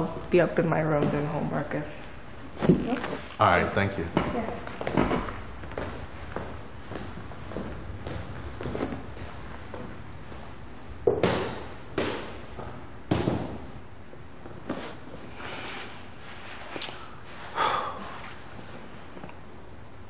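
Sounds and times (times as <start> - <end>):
footsteps climbing stairs: 4.1 - 13.7.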